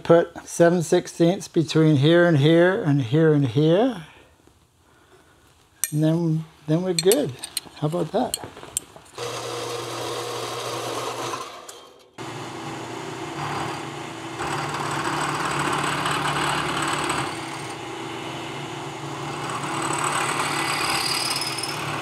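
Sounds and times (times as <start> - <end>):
band saw motor running: 9.2 - 11.6, 12.2 - 18.0, 19.0 - 22.0
milling machine cutting metal rod: 12.6 - 17.8, 19.2 - 22.0.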